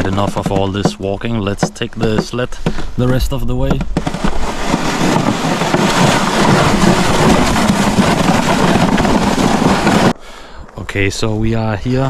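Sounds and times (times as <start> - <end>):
sled runners scraping on snow: 0.0 - 10.2
wind on microphone: 2.8 - 12.0.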